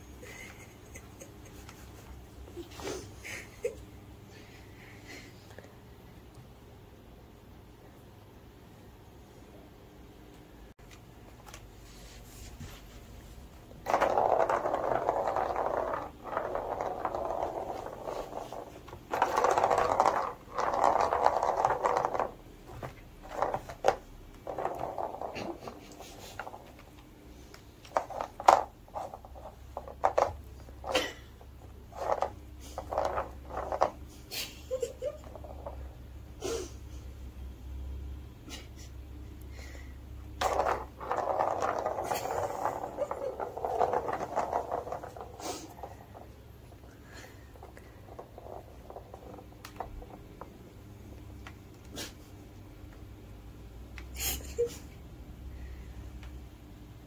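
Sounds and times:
plastic ball rolling around track: 0:13.6 - 0:36.2, 0:40.4 - 0:50.8.

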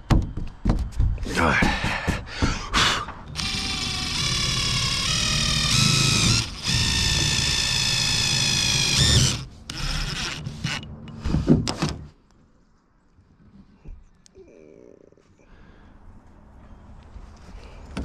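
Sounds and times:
impact driver hammering screws: 0:03.2 - 0:10.8.

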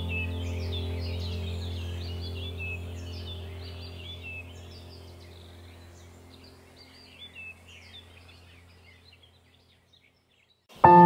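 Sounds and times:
low steady drone: 0:00.0 - 0:08.8
bird chirps: 0:00.0 - 0:11.0.

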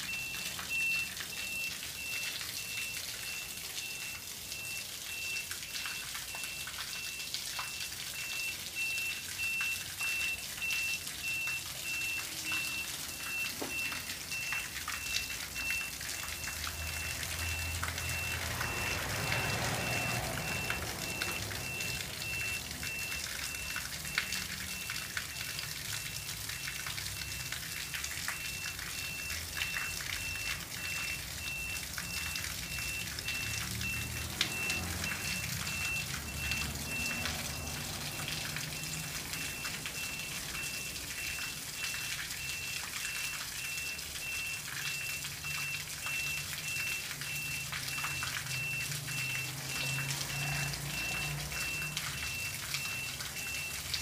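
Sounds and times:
water jets splashing on pavement: 0:00.0 - 0:54.0.

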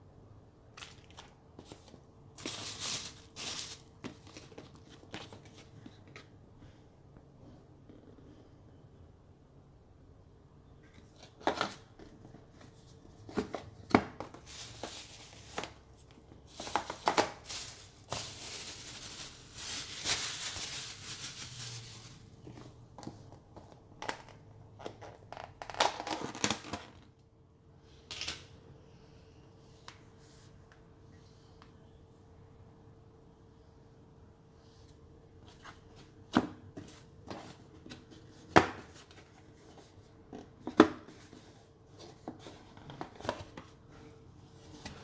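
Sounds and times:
packaging rustling: 0:00.8 - 0:05.7, 0:14.2 - 0:22.4.

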